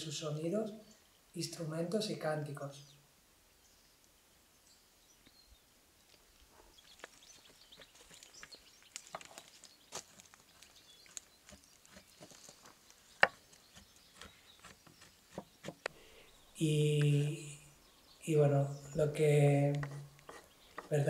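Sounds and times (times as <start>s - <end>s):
knife scraping cacao block: 13.2s - 16.0s, 19.6s - 21.0s.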